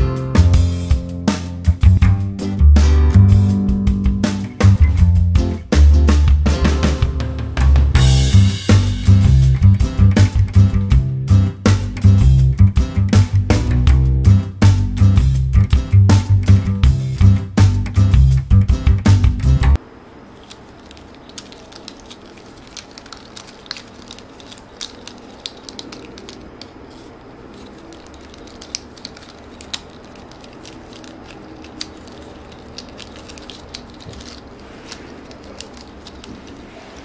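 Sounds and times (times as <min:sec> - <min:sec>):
plastic straws clicking and crackling: 0:20.4 - 0:37.0.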